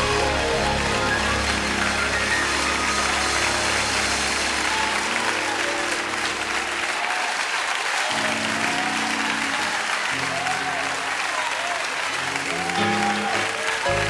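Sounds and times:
sustained instrumental chords: 0.0 - 7.1
audience applause: 0.0 - 14.0.

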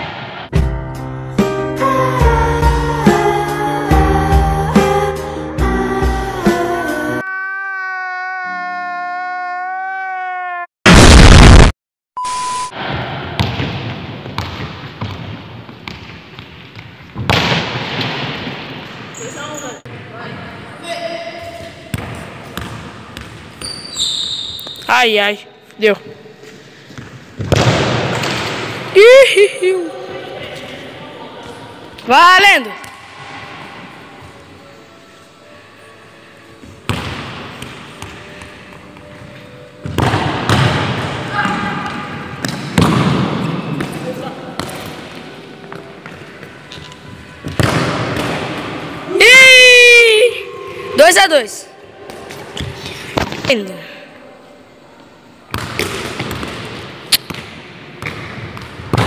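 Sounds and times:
short electronic beep: 12.2 - 12.8
football kicked and bouncing: 13.4 - 17.7.

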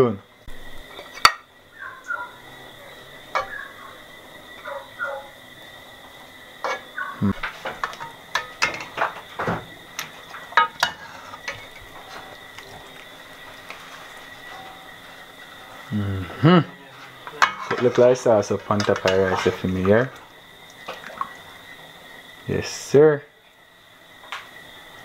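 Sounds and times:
metal spoon scraping a pot: 10.0 - 15.9, 16.9 - 20.0.

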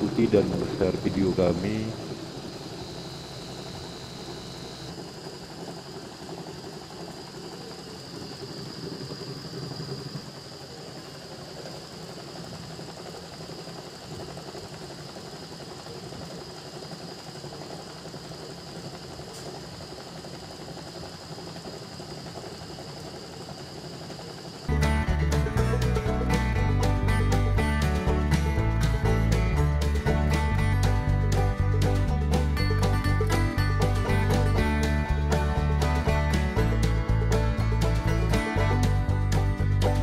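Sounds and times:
thin high whine: 0.0 - 25.1
washing machine spin hum: 0.0 - 40.0.

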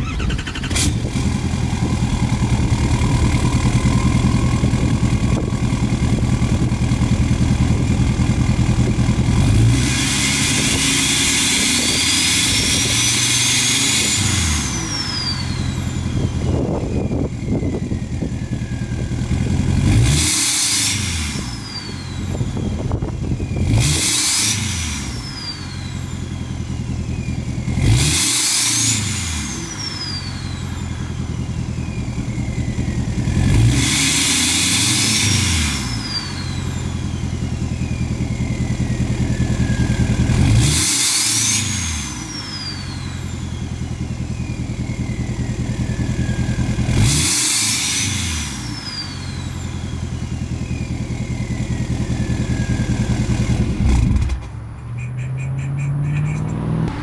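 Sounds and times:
diesel engine revving: 0.0 - 57.0
turbo whistle: 10.0 - 19.3, 20.2 - 53.5.

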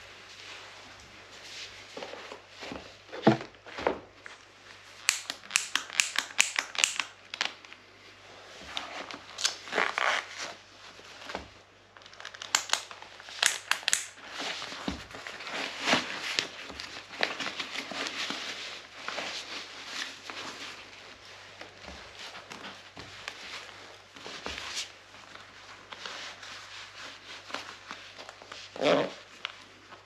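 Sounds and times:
overshoes rustling and crinkling: 0.0 - 30.0
hook-and-loop straps ripping: 5.0 - 7.6, 9.3 - 10.6, 12.1 - 14.2.

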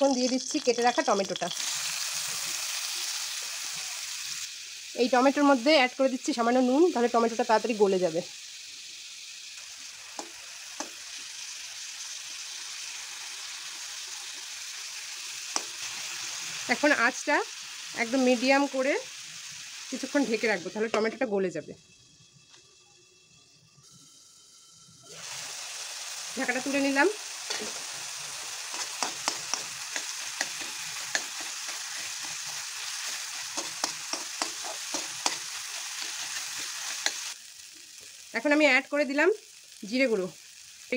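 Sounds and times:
potatoes sizzling in hot oil: 0.0 - 40.9
metal spatula tapping pan: 28.7 - 32.5, 33.6 - 35.4.

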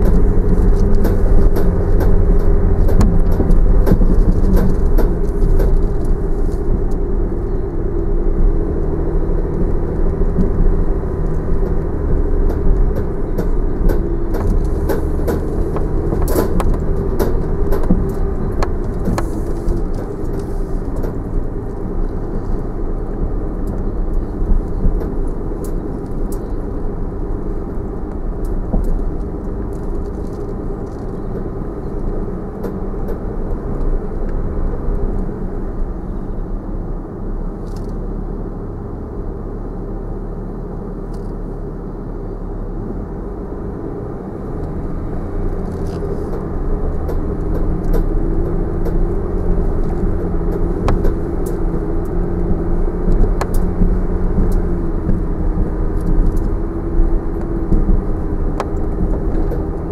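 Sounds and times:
engine and tyre rumble: 0.0 - 59.9.

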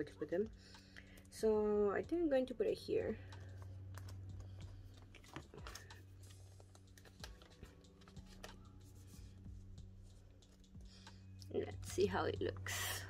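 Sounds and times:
plastic sleeves rustling: 3.3 - 10.7
binder page turning: 3.6 - 9.1.

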